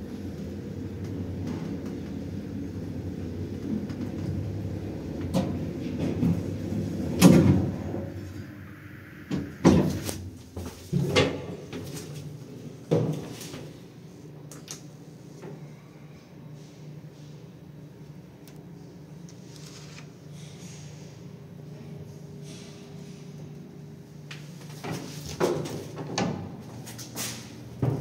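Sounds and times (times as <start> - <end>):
lift humming: 0.0 - 12.4.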